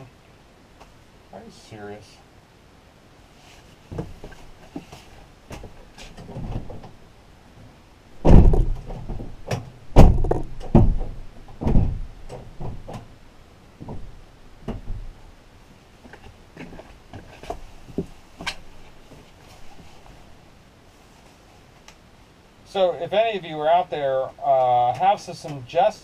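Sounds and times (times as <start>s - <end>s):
loud heavy bumps: 3.9s - 7.0s, 8.2s - 13.2s, 13.8s - 15.3s
thuds and knocks inside van: 3.9s - 7.0s, 8.2s - 13.2s, 13.8s - 15.2s.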